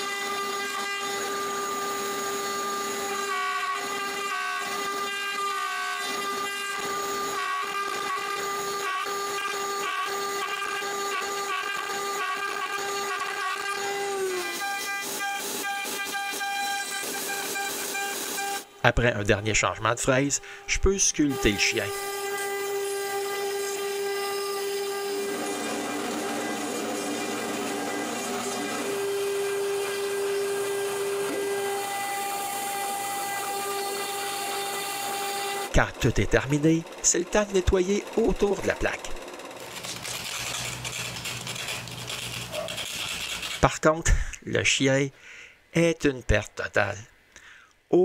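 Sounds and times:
router spindle whine: 0:00.0 - 0:18.8, 0:20.5 - 0:43.6
wood cutting hiss: 0:20.3 - 0:44.4
bit rasping through wood: 0:21.3 - 0:35.8, 0:36.4 - 0:43.8.

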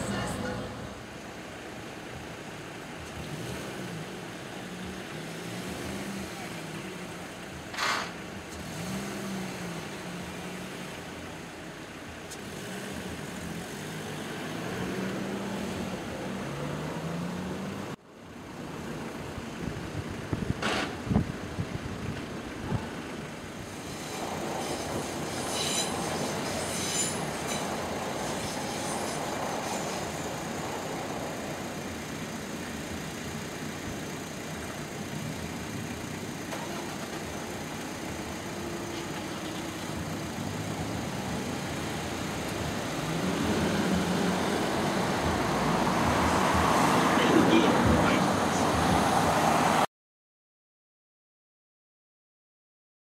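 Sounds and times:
road traffic idling: 0:00.0 - 0:49.9
train rolling over crossing: 0:23.6 - 0:32.1.

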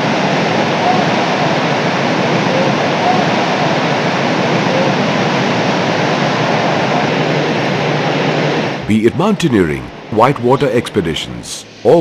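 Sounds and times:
whitewater rapids rushing: 0:00.0 - 0:09.4.

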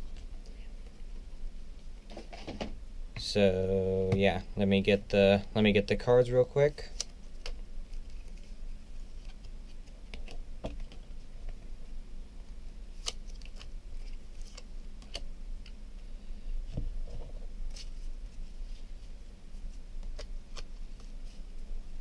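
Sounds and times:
faint steady hum: 0:00.0 - 0:22.0
cards clicking and crinkling: 0:13.0 - 0:15.8, 0:20.0 - 0:21.1.

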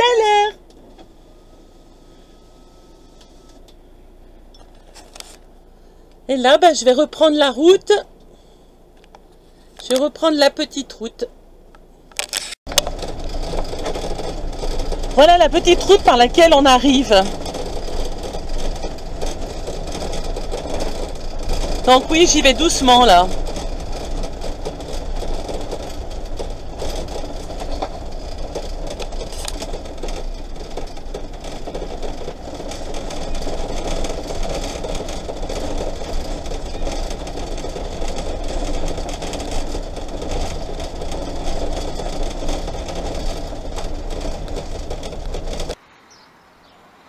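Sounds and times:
engine running: 0:00.0 - 0:10.4, 0:11.3 - 0:45.8
van driving over gravel: 0:00.0 - 0:11.0, 0:12.2 - 0:45.8
dashboard rattling: 0:12.2 - 0:45.8.

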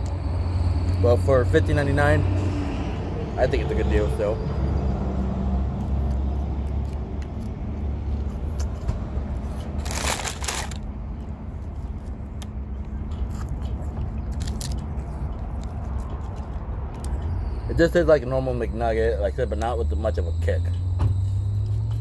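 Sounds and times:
person chewing crunchy food: 0:05.7 - 0:12.2, 0:12.8 - 0:17.2
rustling: 0:09.6 - 0:10.8.

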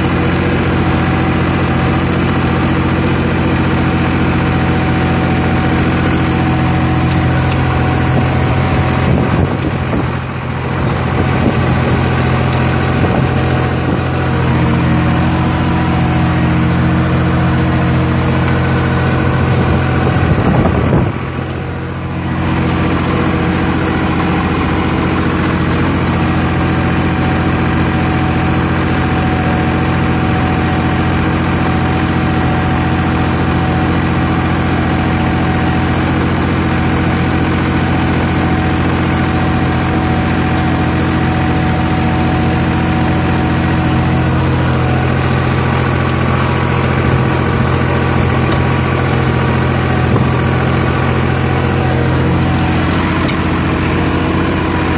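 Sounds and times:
tractor diesel engine running: 0:00.0 - 0:54.9.

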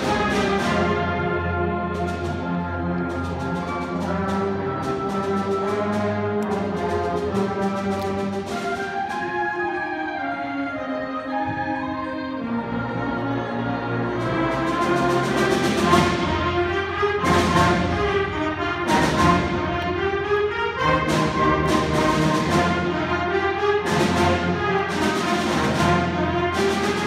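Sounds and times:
concert band playing: 0:00.0 - 0:27.0
percussion hits: 0:14.3 - 0:27.0.

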